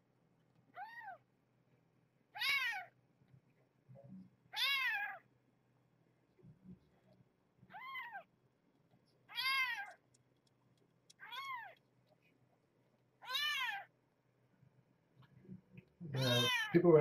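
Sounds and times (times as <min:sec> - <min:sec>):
kitten meowing: 0:00.8 - 0:01.2, 0:02.4 - 0:02.9, 0:04.5 - 0:05.2, 0:07.7 - 0:08.3, 0:09.3 - 0:10.0, 0:11.2 - 0:11.8, 0:13.2 - 0:13.9, 0:16.2 - 0:16.8.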